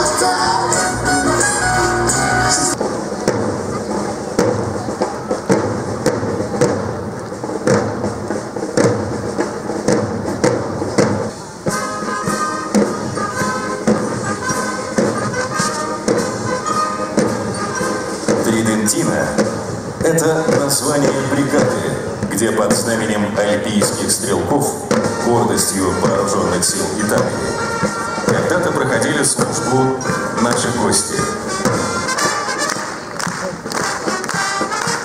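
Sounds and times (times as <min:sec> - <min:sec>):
brass playing march tune: 0:00.0 - 0:02.9, 0:09.6 - 0:35.0
military band drums marching: 0:01.2 - 0:35.0.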